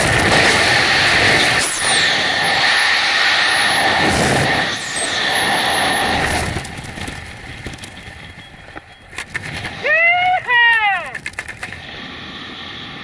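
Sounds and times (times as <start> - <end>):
freefall wind rushing: 0.0 - 8.3, 11.6 - 13.0.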